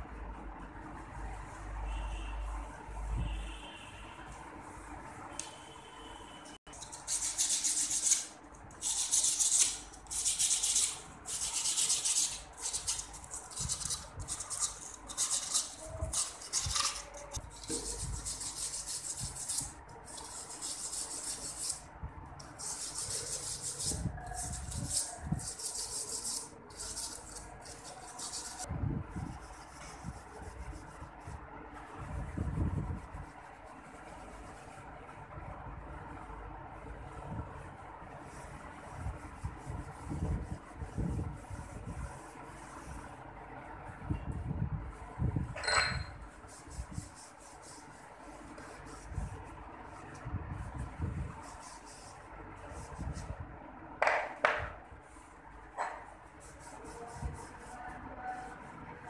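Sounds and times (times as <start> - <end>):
cloth wiping steel: 6.8 - 31.4, 55.8 - 58.6
dull knocks of metal rod: 54.0 - 54.8.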